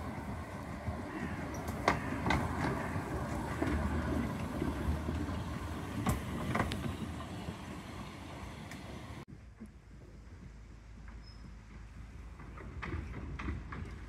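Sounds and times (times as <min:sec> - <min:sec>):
steam locomotive rumble: 0:00.0 - 0:09.3.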